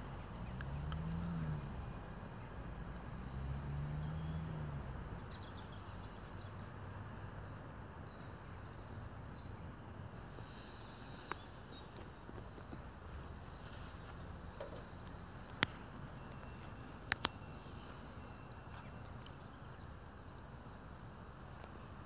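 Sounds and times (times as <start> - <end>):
faint bird chirps: 13.5 - 20.7.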